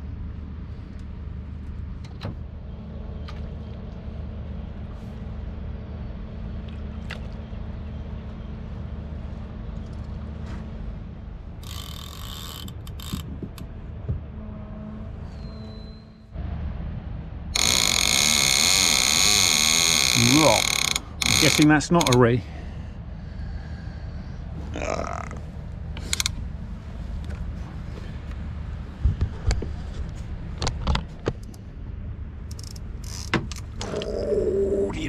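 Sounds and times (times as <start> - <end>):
steady low hum: 0.0 - 35.0
fishing reel ratcheting: 17.6 - 22.2, 32.5 - 33.3.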